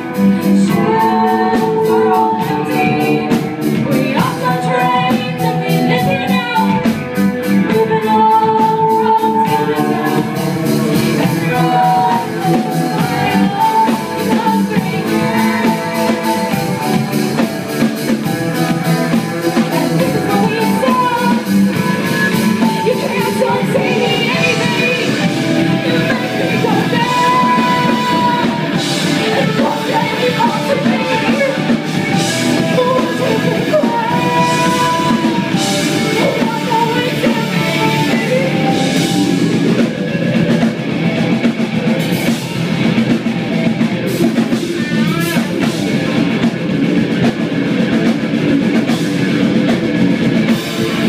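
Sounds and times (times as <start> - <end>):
electric guitar: 0.0 - 51.0
steady drum beat: 0.0 - 51.0
woman singing into a microphone: 0.4 - 7.0, 7.6 - 16.9, 19.8 - 39.2.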